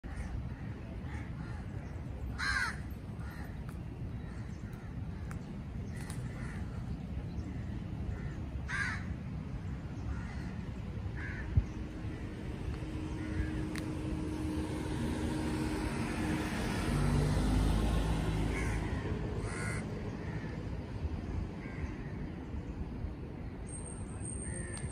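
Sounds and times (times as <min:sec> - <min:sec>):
low traffic rumble: 0:00.0 - 0:24.9
crows cawing: 0:02.4 - 0:03.6, 0:06.0 - 0:06.8, 0:07.5 - 0:09.2, 0:10.1 - 0:12.3, 0:13.1 - 0:13.8, 0:18.5 - 0:20.6, 0:21.6 - 0:22.2
vehicle passing: 0:04.2 - 0:23.2.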